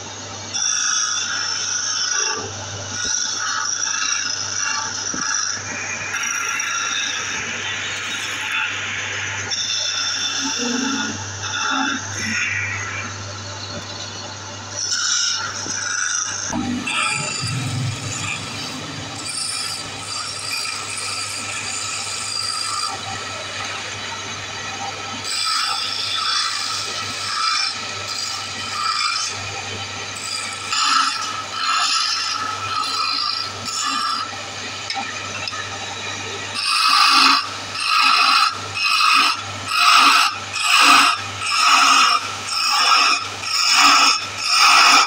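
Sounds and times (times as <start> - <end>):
wood lathe humming: 14.7 - 23.1.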